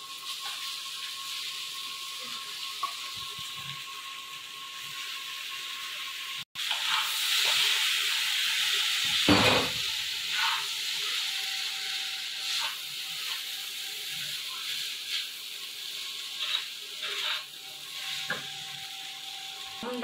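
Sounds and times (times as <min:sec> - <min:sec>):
noodles sizzling in a wok: 0:00.0 - 0:20.0
spatula scraping wok: 0:06.6 - 0:20.0.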